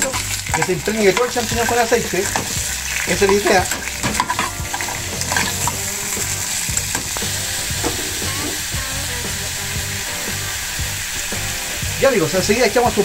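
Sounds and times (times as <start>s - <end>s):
mushrooms sizzling in frying pan: 0.0s - 13.0s.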